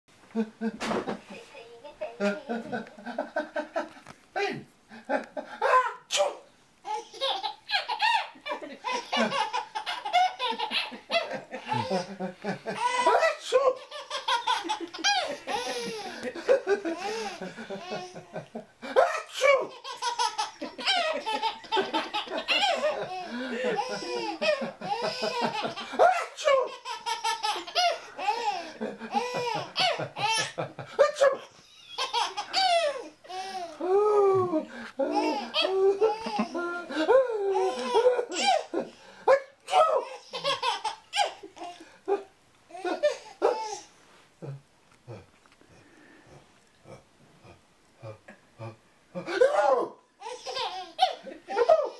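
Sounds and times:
baby laughing: 5.6 - 39.0, 39.7 - 43.9, 49.2 - 51.9
adults laughing: 14.6 - 18.7, 20.4 - 26.0.

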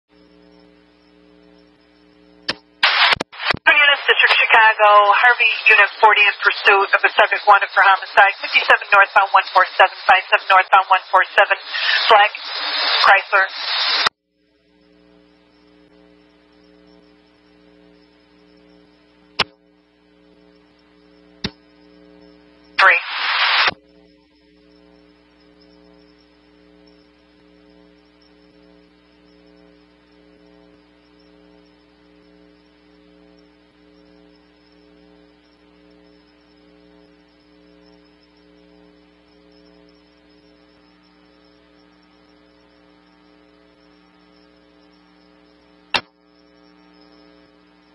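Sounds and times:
radio electrical hum: 0.1 - 47.9
burst of radio noise: 2.5 - 14.1, 22.6 - 23.8
sharp clicks: 19.4 - 19.6, 21.4 - 21.6, 45.9 - 46.2.

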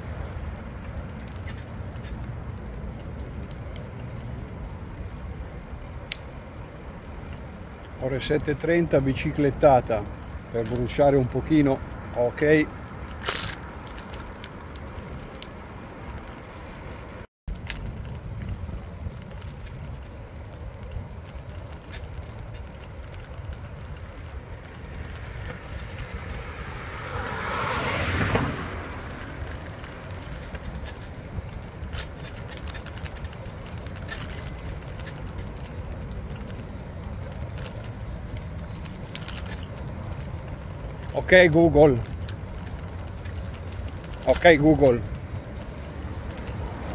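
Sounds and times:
car passing: 0.0 - 17.2, 17.8 - 46.9
bicycle tyres rolling: 0.0 - 46.9
light clicks and rattles: 28.2 - 46.9.

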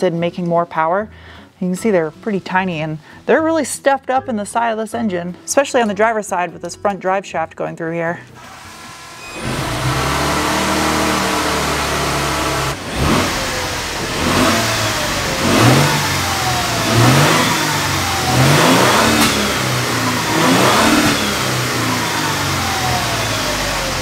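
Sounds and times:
engine idling and revving: 8.4 - 24.0.

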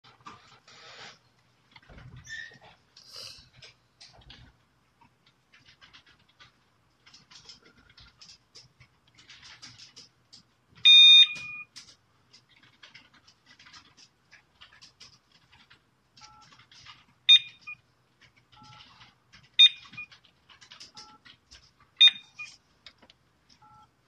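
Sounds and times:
alarm panel beep: 10.8 - 11.7, 17.3 - 17.8, 22.0 - 22.6
faint phone keypad tones: 22.0 - 22.6.

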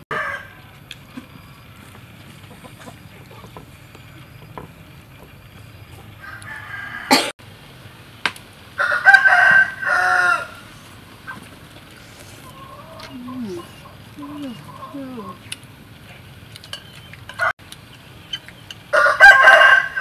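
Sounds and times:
rooster crowing: 0.1 - 0.8, 6.1 - 7.3, 8.8 - 10.9, 18.9 - 20.0.

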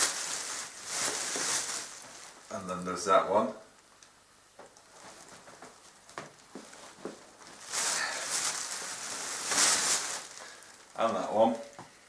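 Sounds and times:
loud hissy rustling: 0.0 - 3.2, 4.9 - 11.6.

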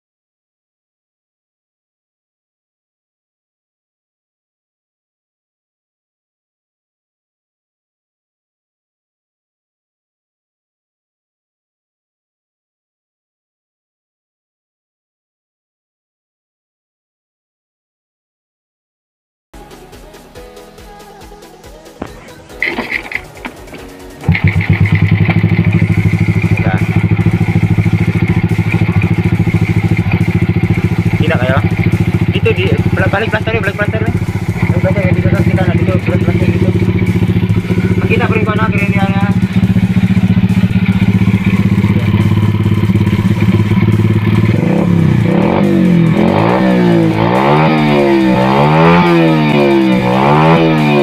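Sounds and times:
motorcycle engine idling: 21.4 - 51.0.

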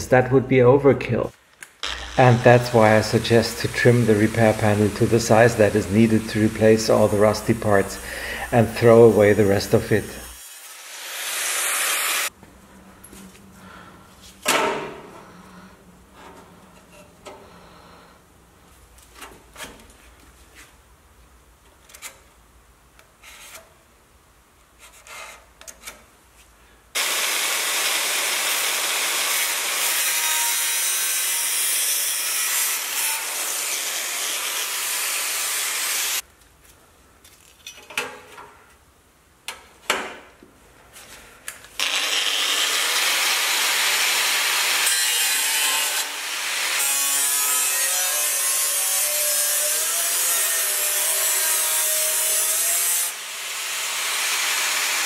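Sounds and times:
angle grinder cutting steel: 1.8 - 12.3, 27.0 - 36.2, 41.8 - 55.0.

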